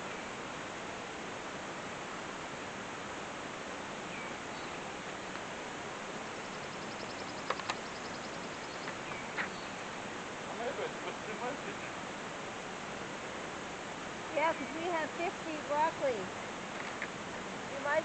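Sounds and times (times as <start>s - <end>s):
steady outdoor hiss: 0.0s - 18.0s
faint bird chirps: 4.0s - 4.9s, 6.2s - 9.9s
sharp clicks: 7.4s - 7.8s.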